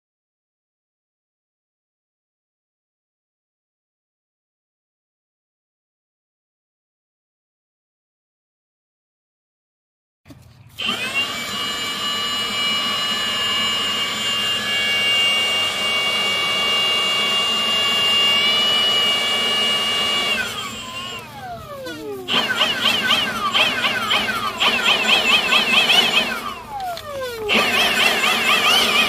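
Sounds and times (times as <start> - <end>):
leaf blower whining: 10.3 - 29.0.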